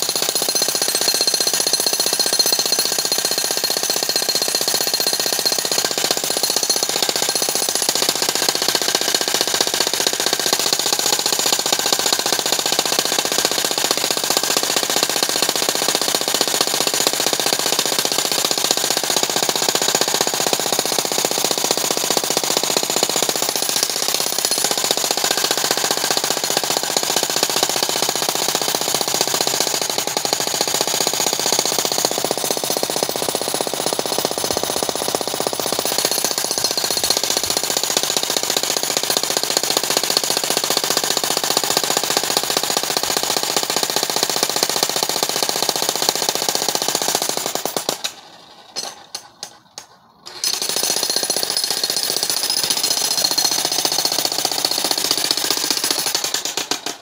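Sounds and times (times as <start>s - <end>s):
jackhammer pounding rock: 0.0s - 57.0s.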